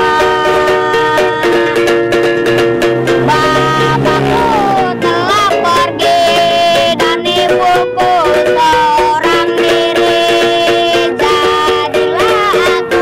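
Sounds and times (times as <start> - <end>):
melody with sliding notes: 0.0 - 9.7
plucked strings: 0.0 - 13.0.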